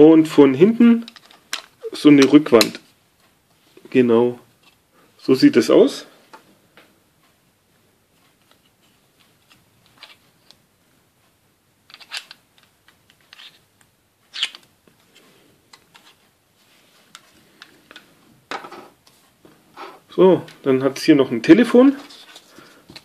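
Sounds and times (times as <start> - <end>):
plastic parts clicking and rattling: 1.0 - 2.8, 9.2 - 10.6, 11.9 - 13.6.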